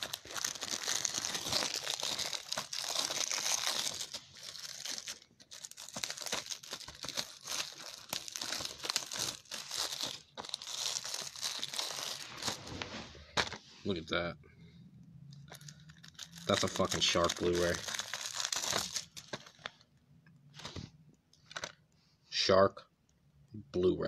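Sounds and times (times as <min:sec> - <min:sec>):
plastic wrap crinkling: 0:00.0 - 0:13.4, 0:15.4 - 0:19.9.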